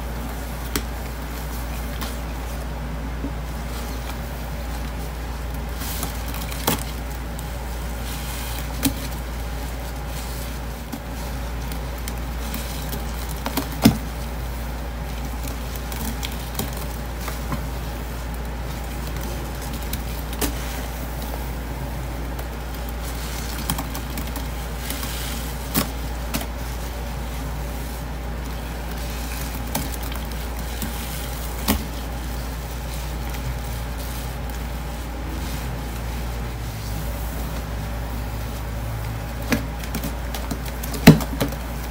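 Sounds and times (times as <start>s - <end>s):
sponges squelching: 0.0s - 41.9s
steady low hum: 0.0s - 41.9s.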